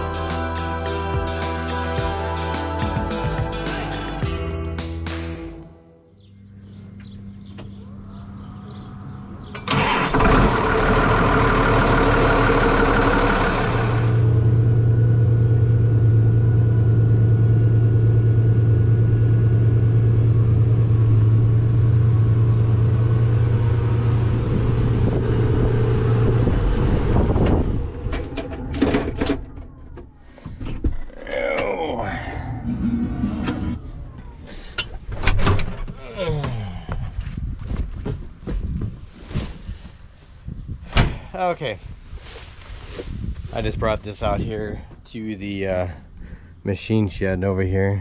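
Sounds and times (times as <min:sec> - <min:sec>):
tractor engine running: 0:09.2 - 0:31.8
tractor engine cranking: 0:09.5 - 0:16.0, 0:27.4 - 0:31.8.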